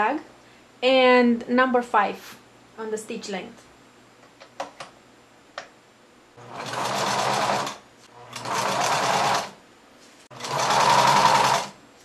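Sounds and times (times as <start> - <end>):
sewing machine stitching: 6.4 - 9.6, 10.3 - 11.8.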